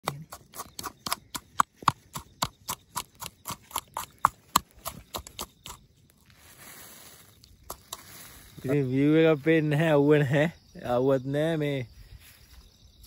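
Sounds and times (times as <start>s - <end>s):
faint hiss: 6.2s - 9.8s.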